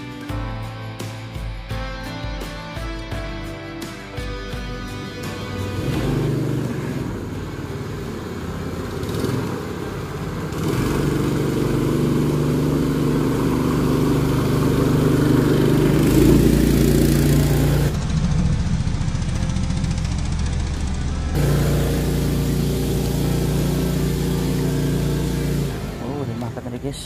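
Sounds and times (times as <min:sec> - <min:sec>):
small engine running: 0:04.5 - 0:27.0.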